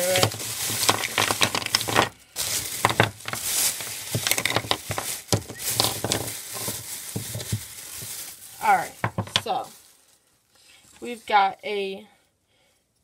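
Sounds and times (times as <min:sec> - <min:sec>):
plastic bag crinkling: 0:00.0 - 0:11.9
containers clattering onto wooden table: 0:04.1 - 0:07.4, 0:09.0 - 0:09.5.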